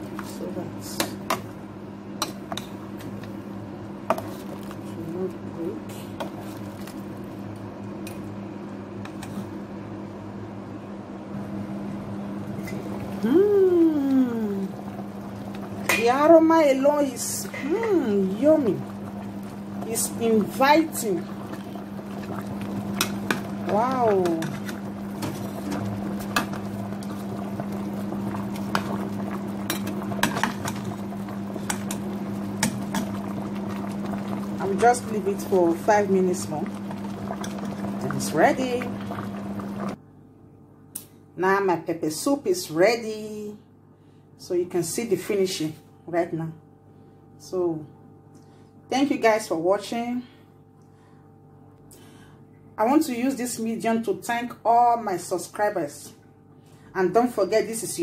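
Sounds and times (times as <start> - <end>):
steady low hum: 0.0 - 58.0
soup simmering in pot: 1.1 - 5.4, 6.1 - 8.4, 11.5 - 17.2, 18.1 - 40.0.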